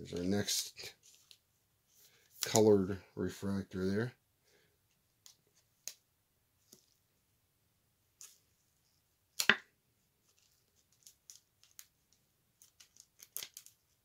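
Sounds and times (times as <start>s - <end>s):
small light clicks and scrapes: 0.9s - 1.4s, 10.2s - 14.0s.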